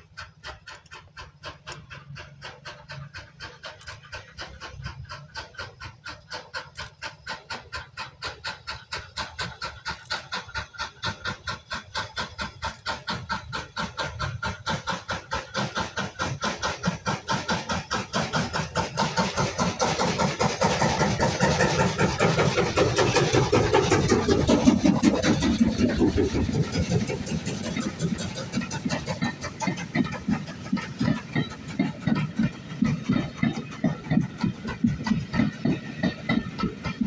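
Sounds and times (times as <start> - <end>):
steam locomotive chuffing: 0.0 - 37.0
train rumble: 0.0 - 37.0.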